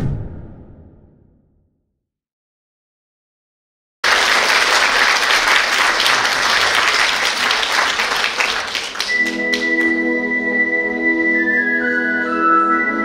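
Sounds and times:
audience applauding: 4.0 - 10.0
held musical notes: 7.9 - 13.0.

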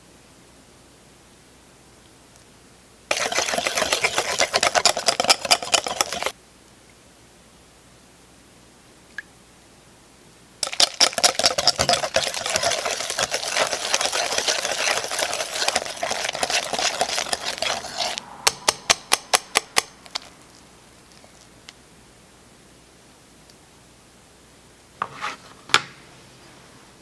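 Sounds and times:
whisk tapping a bowl: 3.1 - 6.3, 10.6 - 19.9
whisk scraping a glass bowl: 3.1 - 6.4, 10.6 - 18.2.

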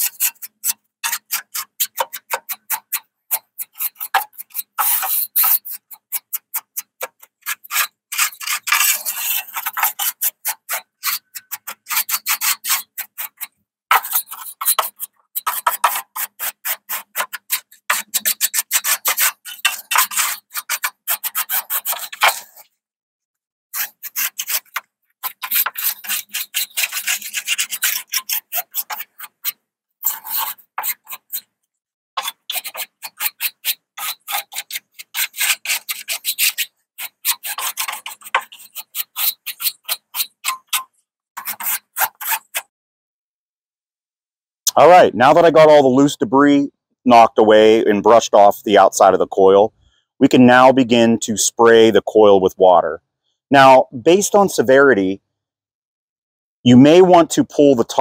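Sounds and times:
brush scrubbing metal fins: 0.0 - 22.6, 23.7 - 31.5, 32.2 - 42.6.

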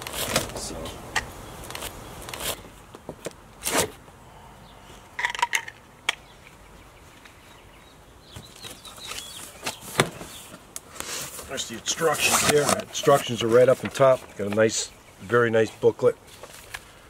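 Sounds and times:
cardboard rustling: 0.0 - 0.7, 8.4 - 14.8
knife ripping packing tape: 1.7 - 2.6, 3.6 - 4.0.

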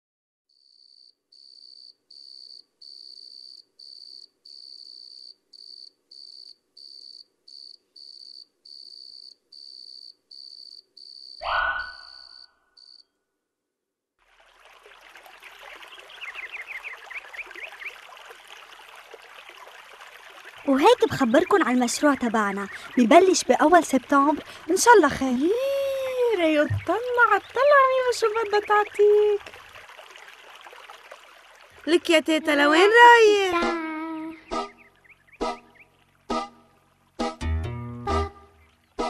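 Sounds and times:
cricket chirping: 0.5 - 13.1.

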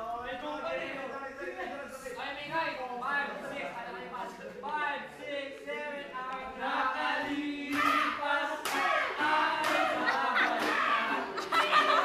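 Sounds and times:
group singing along: 5.1 - 12.0
sharp claps or knocks: 8.6 - 8.9.

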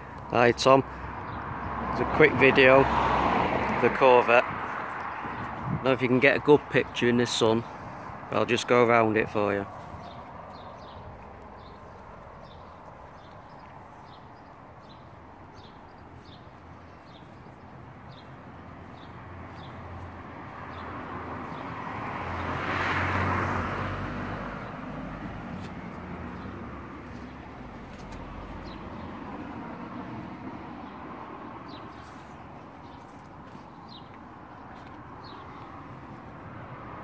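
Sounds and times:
car passing by: 0.9 - 5.5, 19.0 - 32.5.

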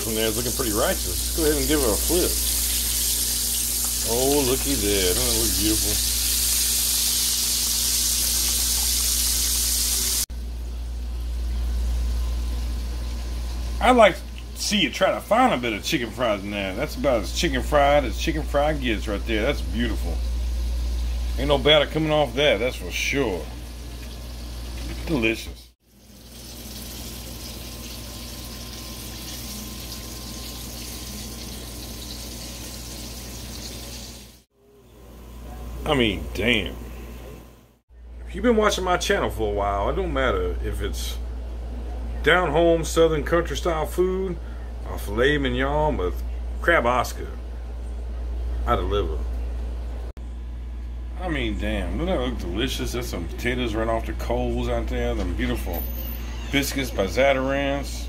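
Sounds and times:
steady hissing noise: 0.0 - 10.3
food deep-frying in oil: 0.0 - 13.8, 23.4 - 34.5
low steady hum: 8.4 - 25.8, 34.6 - 58.0
low hum: 8.8 - 25.2.

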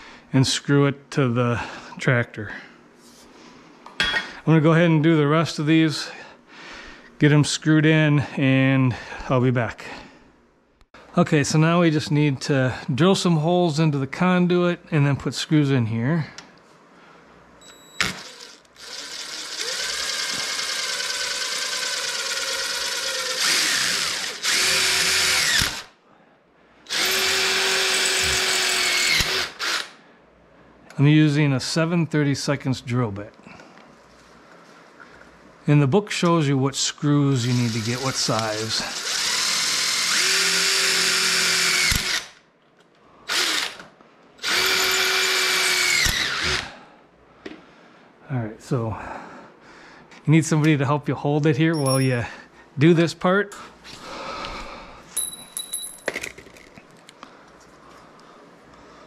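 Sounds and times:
power drill boring through metal: 18.0 - 25.9, 26.9 - 30.0, 37.5 - 42.3, 43.3 - 43.8, 44.4 - 46.7.

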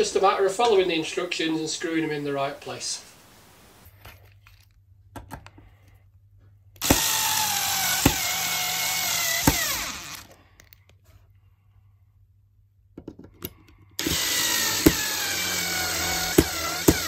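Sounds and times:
cordless drill motor whine: 6.8 - 10.4, 14.0 - 17.0.

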